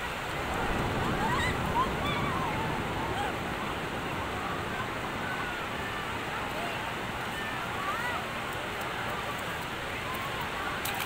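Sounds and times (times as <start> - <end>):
ocean surf washing in: 0.0 - 8.1.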